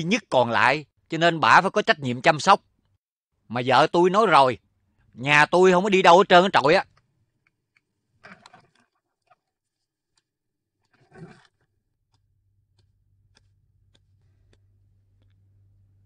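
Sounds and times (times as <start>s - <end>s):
faint scrapes and ticks of movement: 6.9s - 15.6s.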